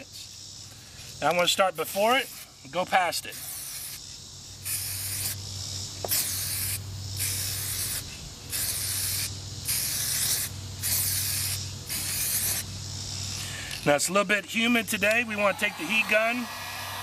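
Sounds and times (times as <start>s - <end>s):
aerosol can spraying: 3.3s - 5.4s, 6.0s - 12.7s.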